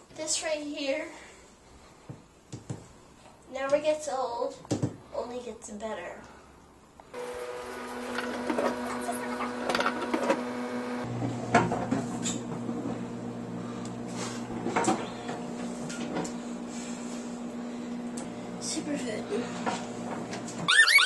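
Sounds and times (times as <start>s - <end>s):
microwave oven humming: 7.1s - 21.0s.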